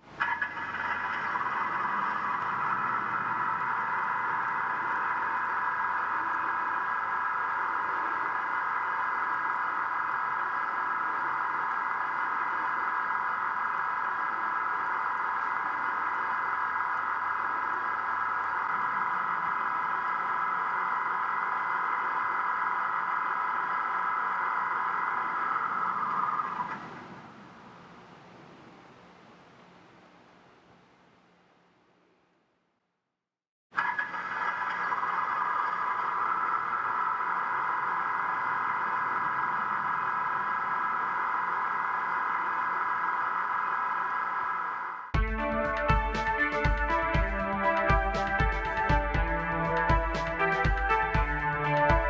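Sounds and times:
diesel engine through small speaker: 0:00.1 - 0:26.7, 0:45.2 - 0:52.0.

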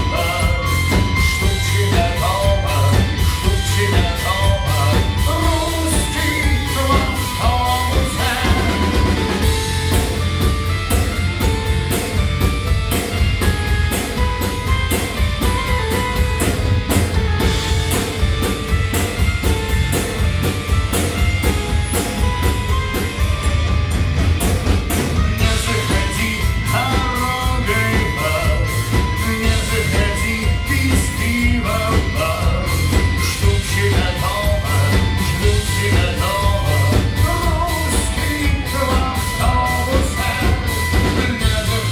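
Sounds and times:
person singing: 0:00.0 - 0:09.6, 0:25.3 - 0:41.9
metallophone melody: 0:00.0 - 0:41.9
rock band playing: 0:00.0 - 0:41.9.

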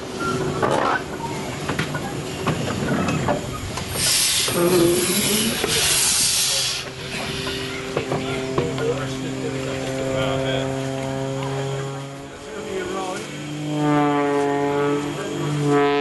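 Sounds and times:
steam locomotive hissing: 0:01.3 - 0:09.6.

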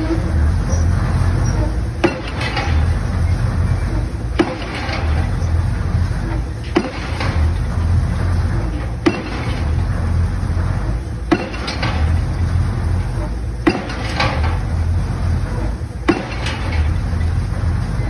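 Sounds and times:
low engine hum: 0:00.0 - 0:18.0
pile hammer striking: 0:02.0 - 0:02.9, 0:04.4 - 0:05.4, 0:06.6 - 0:07.6, 0:09.0 - 0:09.8, 0:11.3 - 0:12.3, 0:13.6 - 0:14.6, 0:16.1 - 0:16.9.

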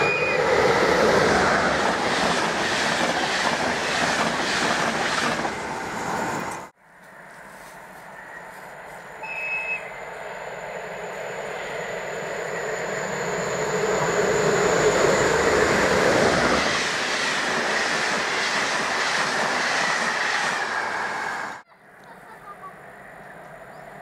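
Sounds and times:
passenger train rushing past: 0:00.0 - 0:06.8, 0:09.8 - 0:21.6
faint high whine: 0:07.0 - 0:15.8.

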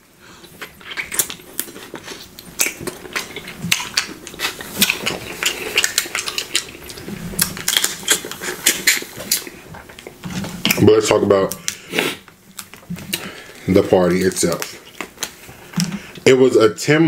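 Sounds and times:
mouth clicks and smacks: 0:00.4 - 0:10.9.

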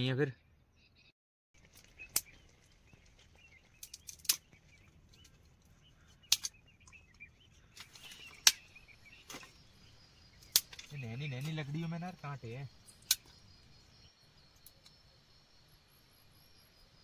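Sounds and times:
dry branches snapping: 0:01.6 - 0:02.5, 0:03.7 - 0:05.5, 0:06.1 - 0:09.6, 0:10.4 - 0:11.6, 0:13.0 - 0:13.4.

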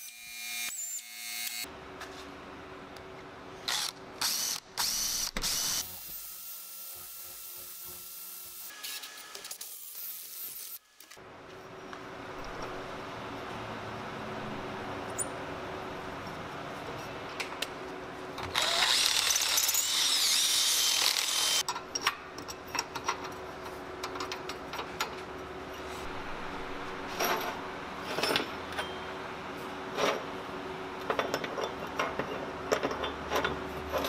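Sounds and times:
power drill boring into metal: 0:18.5 - 0:21.6.

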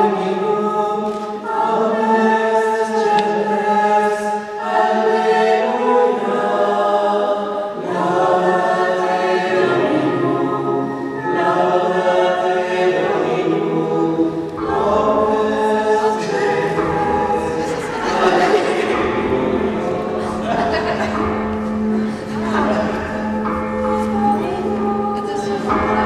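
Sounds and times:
choir singing a slow chant: 0:00.0 - 0:26.0.

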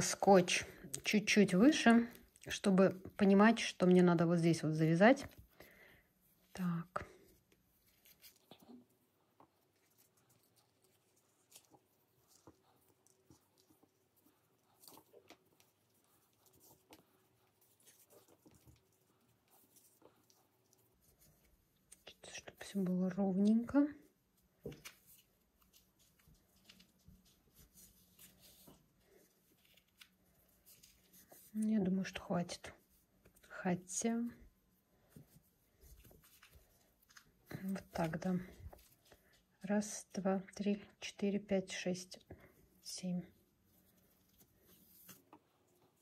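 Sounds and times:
rope rustling and ticking: 0:05.2 - 0:33.6, 0:34.4 - 0:39.7, 0:43.4 - 0:46.0.

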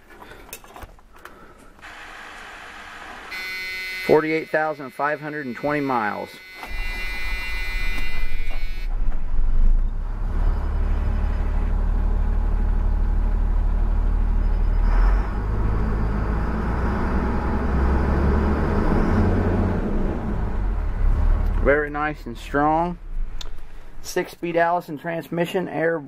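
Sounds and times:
dashboard warning buzzer: 0:03.2 - 0:08.9
diesel engine droning: 0:03.3 - 0:24.0.

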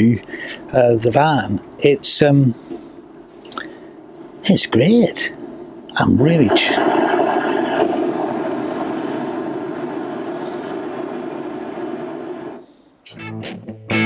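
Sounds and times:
gas burner flame rushing: 0:02.2 - 0:12.7
music: 0:13.0 - 0:14.0.

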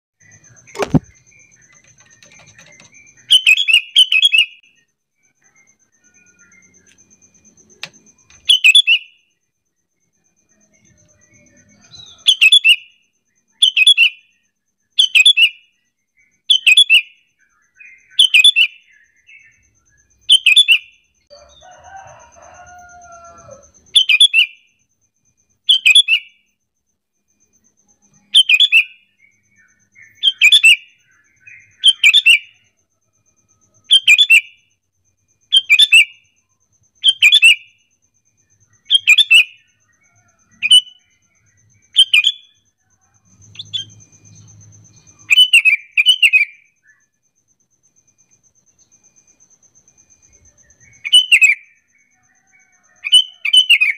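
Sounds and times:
bird calling: 0:00.2 - 0:04.7, 0:41.8 - 0:44.3, 0:45.0 - 0:47.1, 0:50.4 - 0:53.9.

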